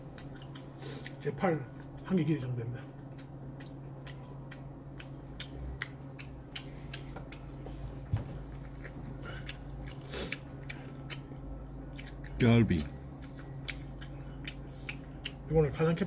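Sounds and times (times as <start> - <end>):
person chewing food: 0.0 - 2.0, 2.8 - 15.7
steady low hum: 0.0 - 16.0
mouth clicks and smacks: 3.1 - 7.5.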